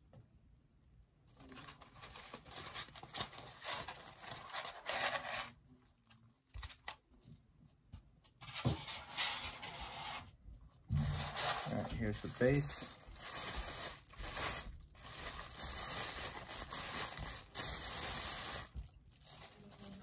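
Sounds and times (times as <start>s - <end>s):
styrofoam rustling and scraping: 1.4s - 5.6s, 8.4s - 20.0s.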